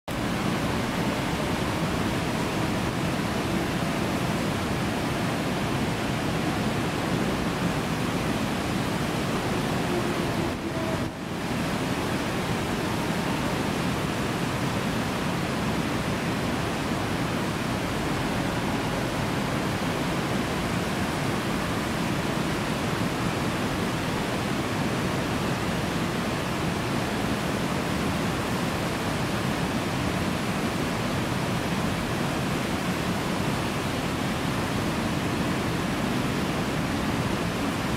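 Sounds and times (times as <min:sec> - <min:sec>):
river rapids rushing: 0:00.1 - 0:37.9.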